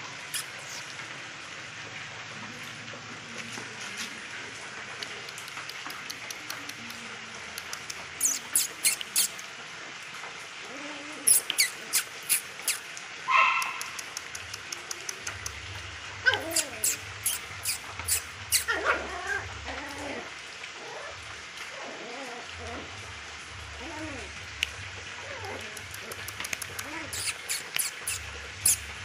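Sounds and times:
quick high squeaks: 0:00.3 - 0:00.9, 0:08.2 - 0:09.4, 0:11.3 - 0:13.9, 0:16.4 - 0:18.8, 0:26.4 - 0:29.0
puppy yip: 0:08.2 - 0:09.3, 0:11.2 - 0:14.0, 0:16.2 - 0:20.0, 0:25.3 - 0:28.9.

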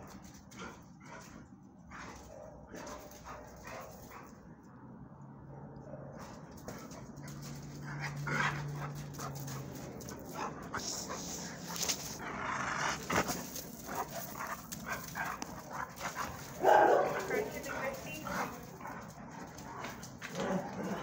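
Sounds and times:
dog vocal sounds: 0:07.1 - 0:21.0
scuffling on gravel: 0:11.4 - 0:19.0.

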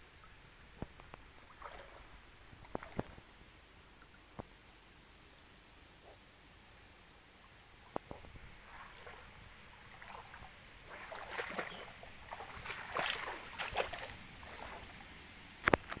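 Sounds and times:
stream water trickling: 0:00.1 - 0:05.0, 0:06.8 - 0:16.0
small water splashes: 0:01.0 - 0:03.3, 0:08.0 - 0:15.2.

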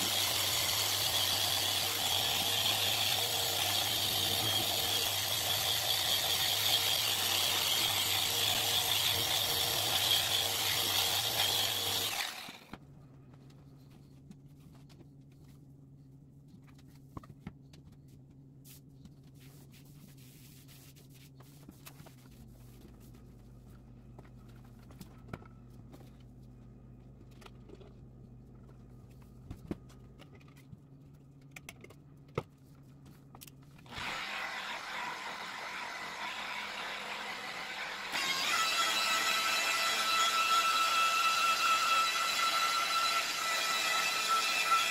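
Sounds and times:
rotary polisher running: 0:11.3 - 0:12.7
cloth wiping a sheet: 0:18.6 - 0:22.8.

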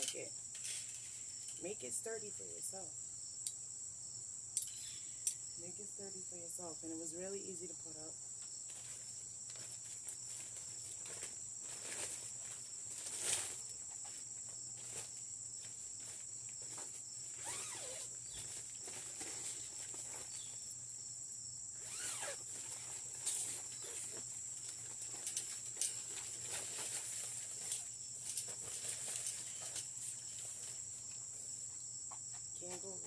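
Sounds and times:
high insect drone: 0:00.0 - 0:33.0
plastic cover crinkling: 0:21.9 - 0:30.7.

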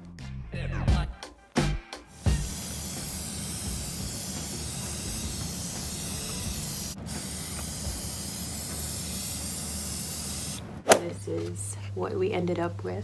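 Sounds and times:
aerosol spray can hissing: 0:02.1 - 0:10.6.

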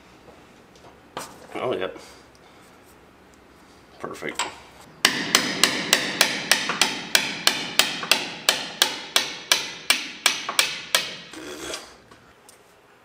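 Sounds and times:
hammer striking metal: 0:05.0 - 0:11.3.

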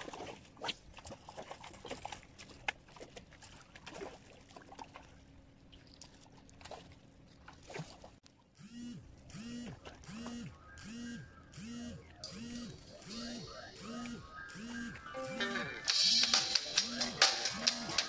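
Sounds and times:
faint splashes and clicks: 0:00.0 - 0:08.4.

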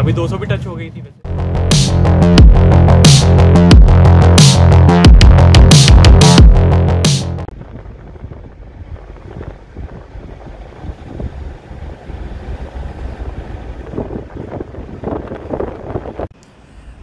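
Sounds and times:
car engine and road rumble: 0:00.0 - 0:17.0
wind buffeting microphone: 0:07.5 - 0:17.0.

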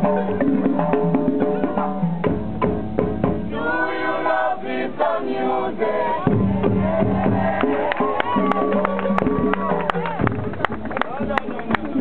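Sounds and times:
drum beating: 0:00.0 - 0:04.1, 0:06.2 - 0:12.0
group singing in chorus: 0:03.4 - 0:07.8.

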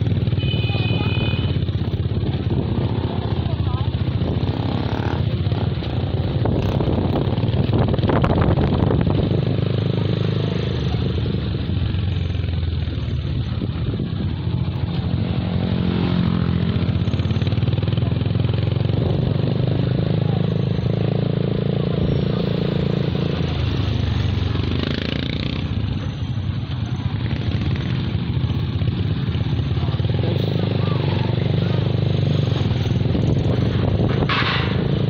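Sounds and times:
motorcycle engine running: 0:00.0 - 0:35.0
nearby motor tricycle engines: 0:00.0 - 0:35.0
rattling clatter: 0:33.7 - 0:35.0.

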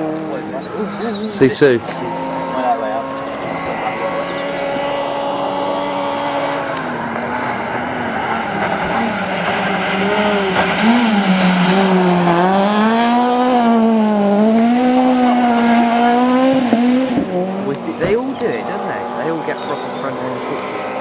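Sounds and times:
rally car engine revving: 0:00.0 - 0:21.0
gravel spraying from tyres: 0:07.2 - 0:13.2.

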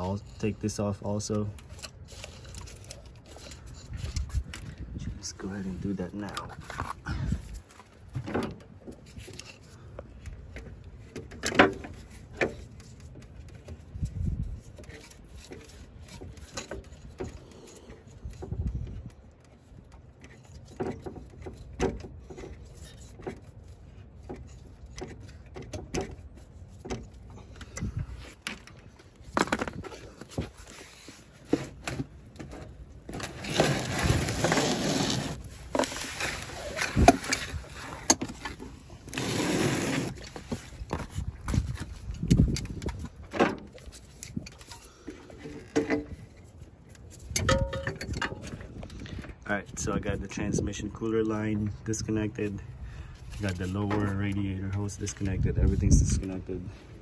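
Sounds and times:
scraping noise: 0:33.2 - 0:41.7
tools clicking and knocking: 0:47.2 - 0:49.0.

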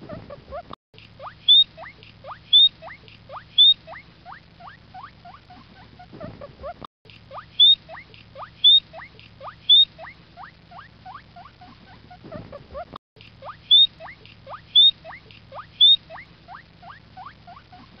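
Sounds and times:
guinea pig squeaking: 0:00.0 - 0:18.0.

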